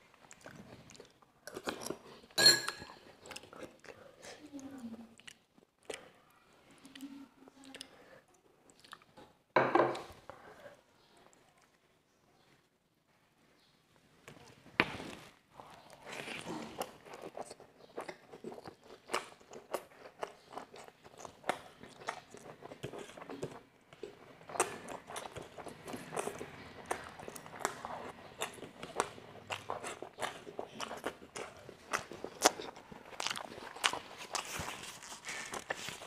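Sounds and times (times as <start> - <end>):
chewing crispy fried chicken: 3.0 - 9.4, 15.6 - 36.0.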